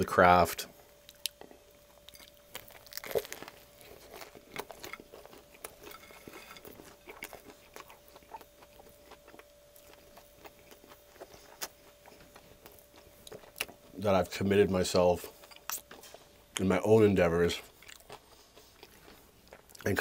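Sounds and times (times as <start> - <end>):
crunchy bites: 1.1 - 13.8.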